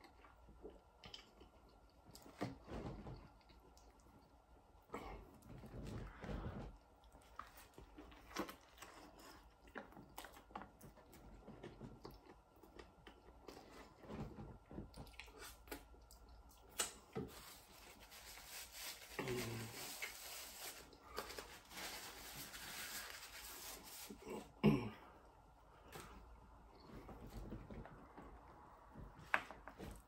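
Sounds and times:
chewing crispy food: 0.0 - 2.3, 7.0 - 14.0.

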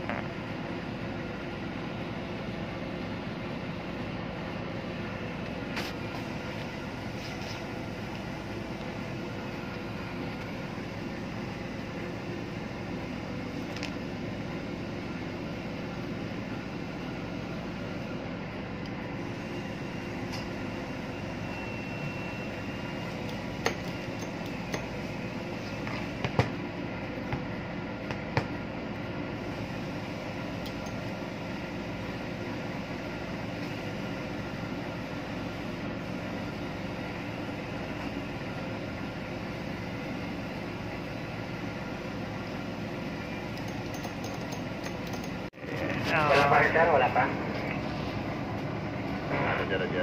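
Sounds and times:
machinery hum: 0.0 - 50.0.

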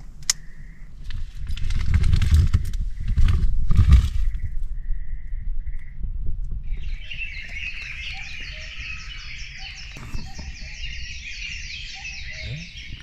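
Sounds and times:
birds chirping: 0.0 - 1.4, 2.3 - 13.0.

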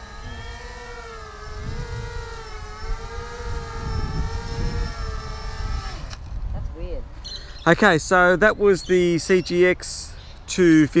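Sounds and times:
wind buffeting microphone: 0.0 - 7.3
quadcopter motors whining: 0.0 - 7.8.

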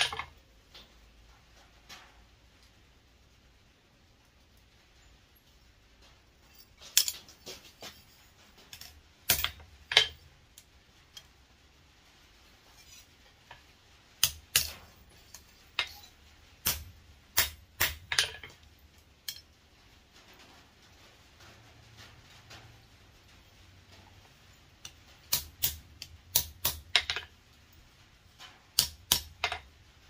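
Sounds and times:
hammer striking metal tongs: 9.3 - 10.2, 14.2 - 18.4, 24.8 - 27.3, 28.8 - 29.7.

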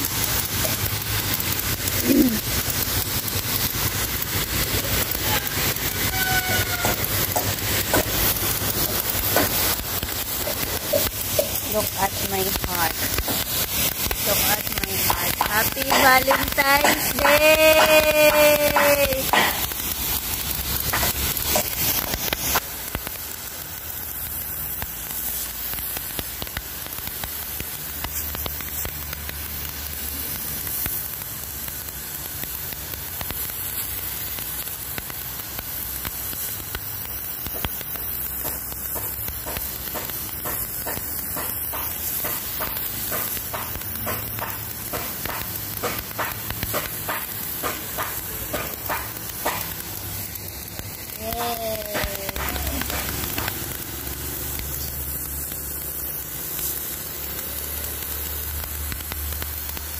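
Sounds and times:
water jet hissing on concrete: 0.0 - 59.9.

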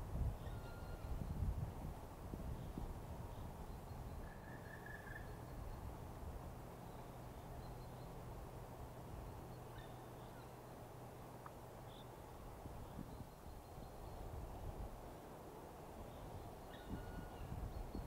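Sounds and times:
bird call: 4.2 - 5.6.

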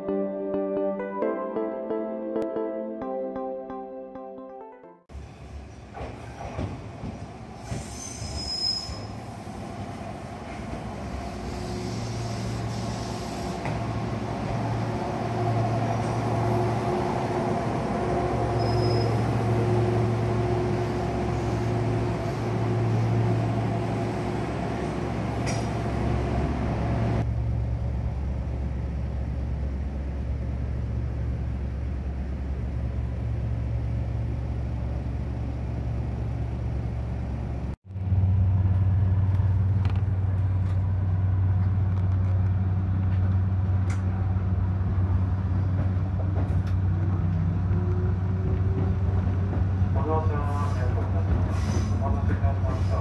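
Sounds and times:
high wheel squeals: 7.7 - 9.3, 18.5 - 19.4
electric train hum: 8.9 - 52.9.

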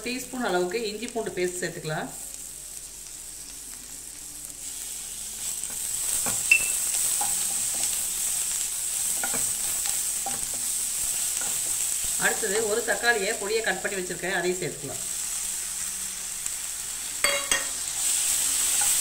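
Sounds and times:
onions sizzling in hot oil: 0.0 - 19.0
sharp clink: 6.5 - 6.8
spatula scraping a pan: 9.1 - 12.0.

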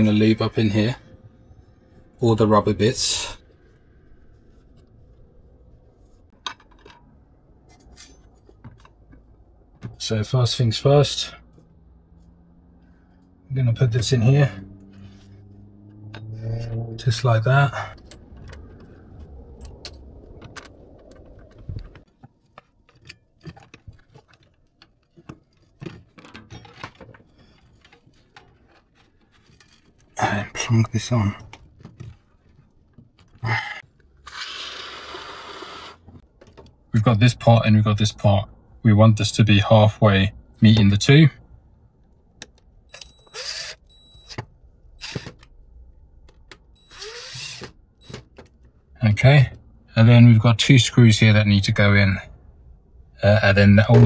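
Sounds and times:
plastic pipe scraping and squeaking: 17.9 - 33.5
flue parts clicking and knocking: 18.0 - 30.2, 31.3 - 34.2, 36.0 - 36.9, 42.0 - 49.8.

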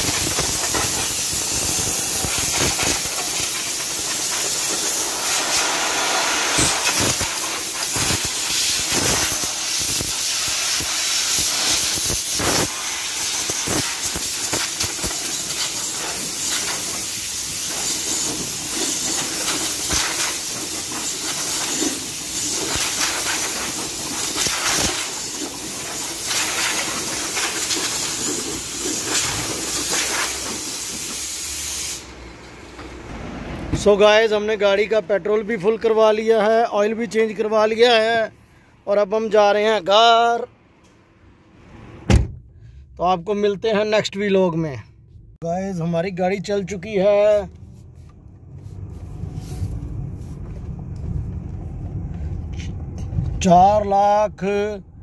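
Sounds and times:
compressed air hose hissing: 0.0 - 32.2.

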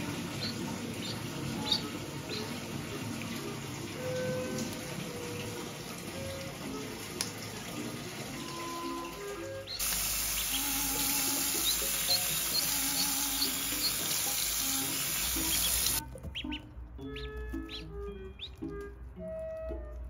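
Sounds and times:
water running from tap: 0.0 - 16.0
light background music: 0.0 - 20.0
duckling peeping: 0.1 - 2.6, 9.6 - 18.8.

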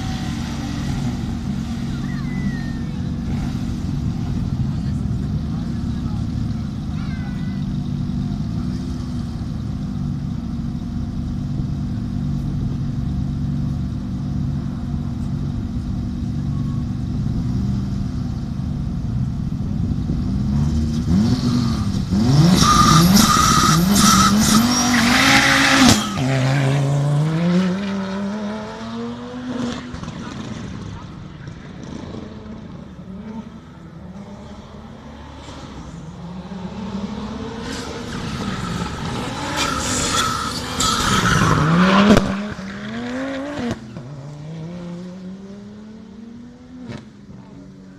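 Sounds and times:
rally car engine revving: 0.0 - 47.9
tyre squeal: 21.4 - 26.9, 37.6 - 43.4.

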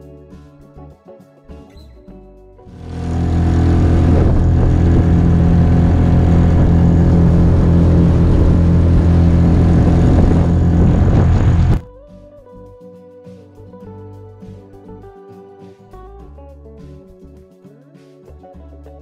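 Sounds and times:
outboard motor running: 2.7 - 11.8
rush of wind and water: 3.0 - 11.8.

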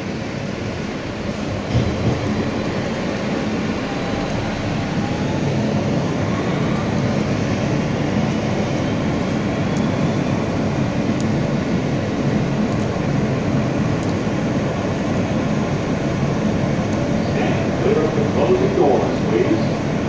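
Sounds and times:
subway train rumbling in tunnel: 0.0 - 20.0.

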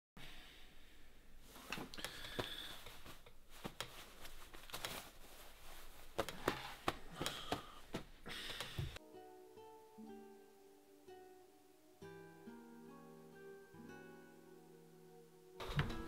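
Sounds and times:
rustling: 1.4 - 8.2
wooden chair creaking: 6.2 - 7.8.

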